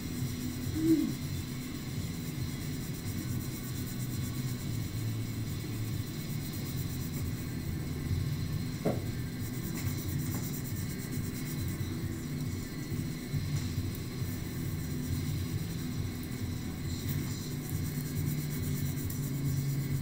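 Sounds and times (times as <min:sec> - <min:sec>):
low room noise rumble: 0:00.0 - 0:20.0.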